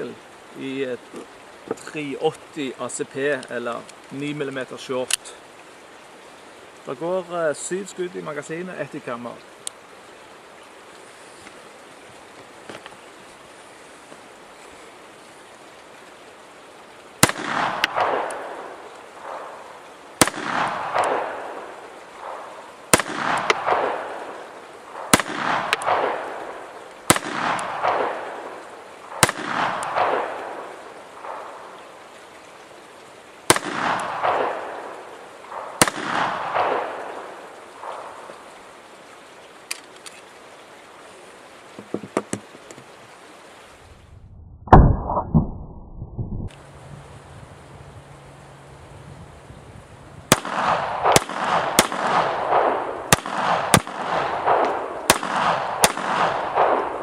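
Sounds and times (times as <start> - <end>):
faint clicks: 3.3 - 5.3, 9.4 - 9.8, 39.6 - 40.3
pistol shots with echo: 17.2 - 19.4, 20.2 - 24.3, 25.0 - 31.5, 33.5 - 34.9, 35.5 - 38.0, 50.3 - 57.0
dull bang: 44.7 - 46.5.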